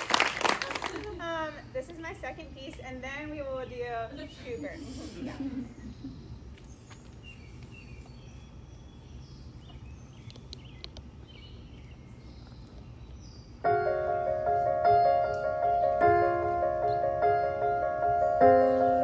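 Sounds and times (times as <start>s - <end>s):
birds chirping: 0.8s - 19.0s
piano chords through small speakers: 13.6s - 19.0s.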